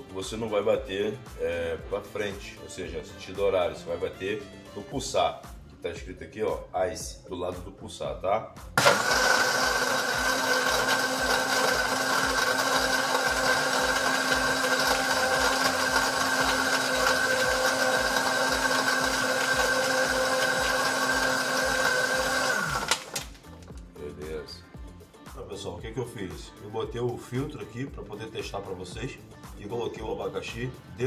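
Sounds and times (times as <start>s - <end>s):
blender crushing ice: 8.8s - 23.7s.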